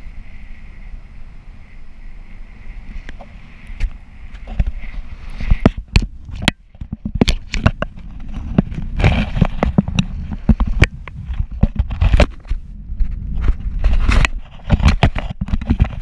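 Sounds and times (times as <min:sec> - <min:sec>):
wind rumbling on microphone: 0:00.0 - 0:16.0
camera handling knocks and rattles: 0:05.4 - 0:16.0.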